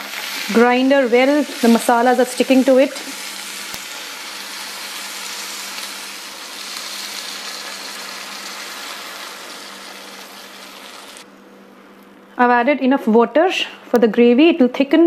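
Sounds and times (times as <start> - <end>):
food sizzling in a hot pan: 0.0 - 11.2.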